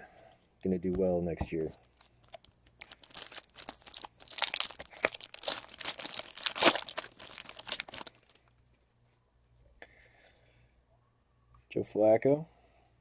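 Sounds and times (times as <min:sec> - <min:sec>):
foil wrapper crinkling and tearing: 0:01.7 - 0:08.4.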